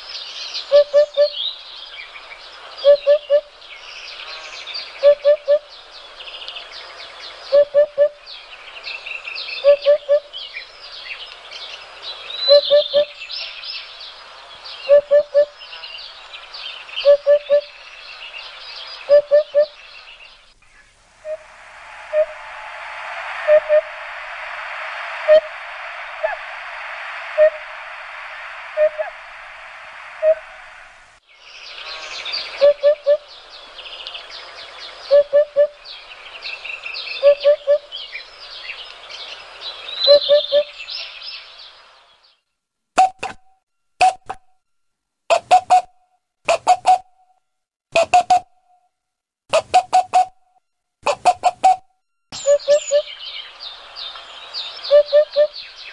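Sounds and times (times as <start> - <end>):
low bird call: 0.5 - 6.6, 7.3 - 41.8, 52.4 - 55.9
steady rushing noise: 20.4 - 35.1
small birds chirping: 31.3 - 42.4, 52.4 - 55.9.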